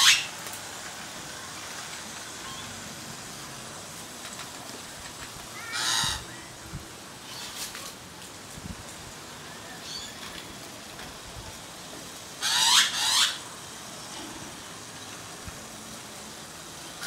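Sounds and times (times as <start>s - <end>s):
magpie harsh calls: 5.6s - 6.3s, 12.4s - 13.4s.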